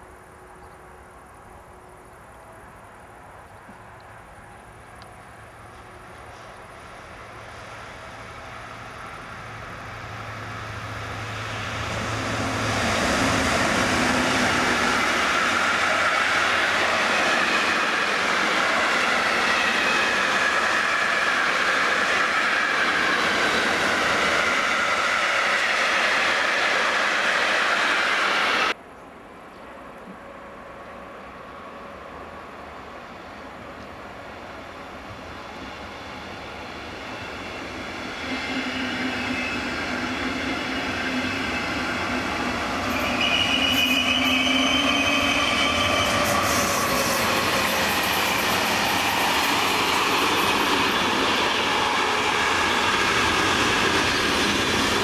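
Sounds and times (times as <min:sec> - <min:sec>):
diesel locomotive engine hum: 0:00.0 - 0:55.0
train wheels on rails: 0:01.3 - 0:28.8, 0:31.8 - 0:55.0
wavering wheel squeal: 0:38.2 - 0:52.7.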